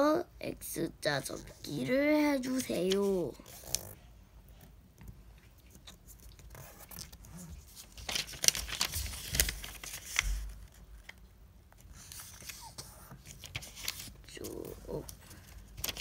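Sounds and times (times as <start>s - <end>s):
paper rustling and crackling: 1.8s - 4.0s, 5.5s - 16.0s.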